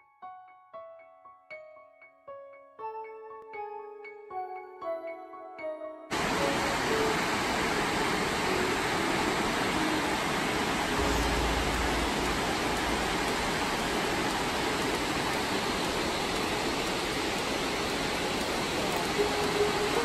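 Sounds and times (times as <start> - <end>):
water rushing over dam spillway: 6.1 - 20.0.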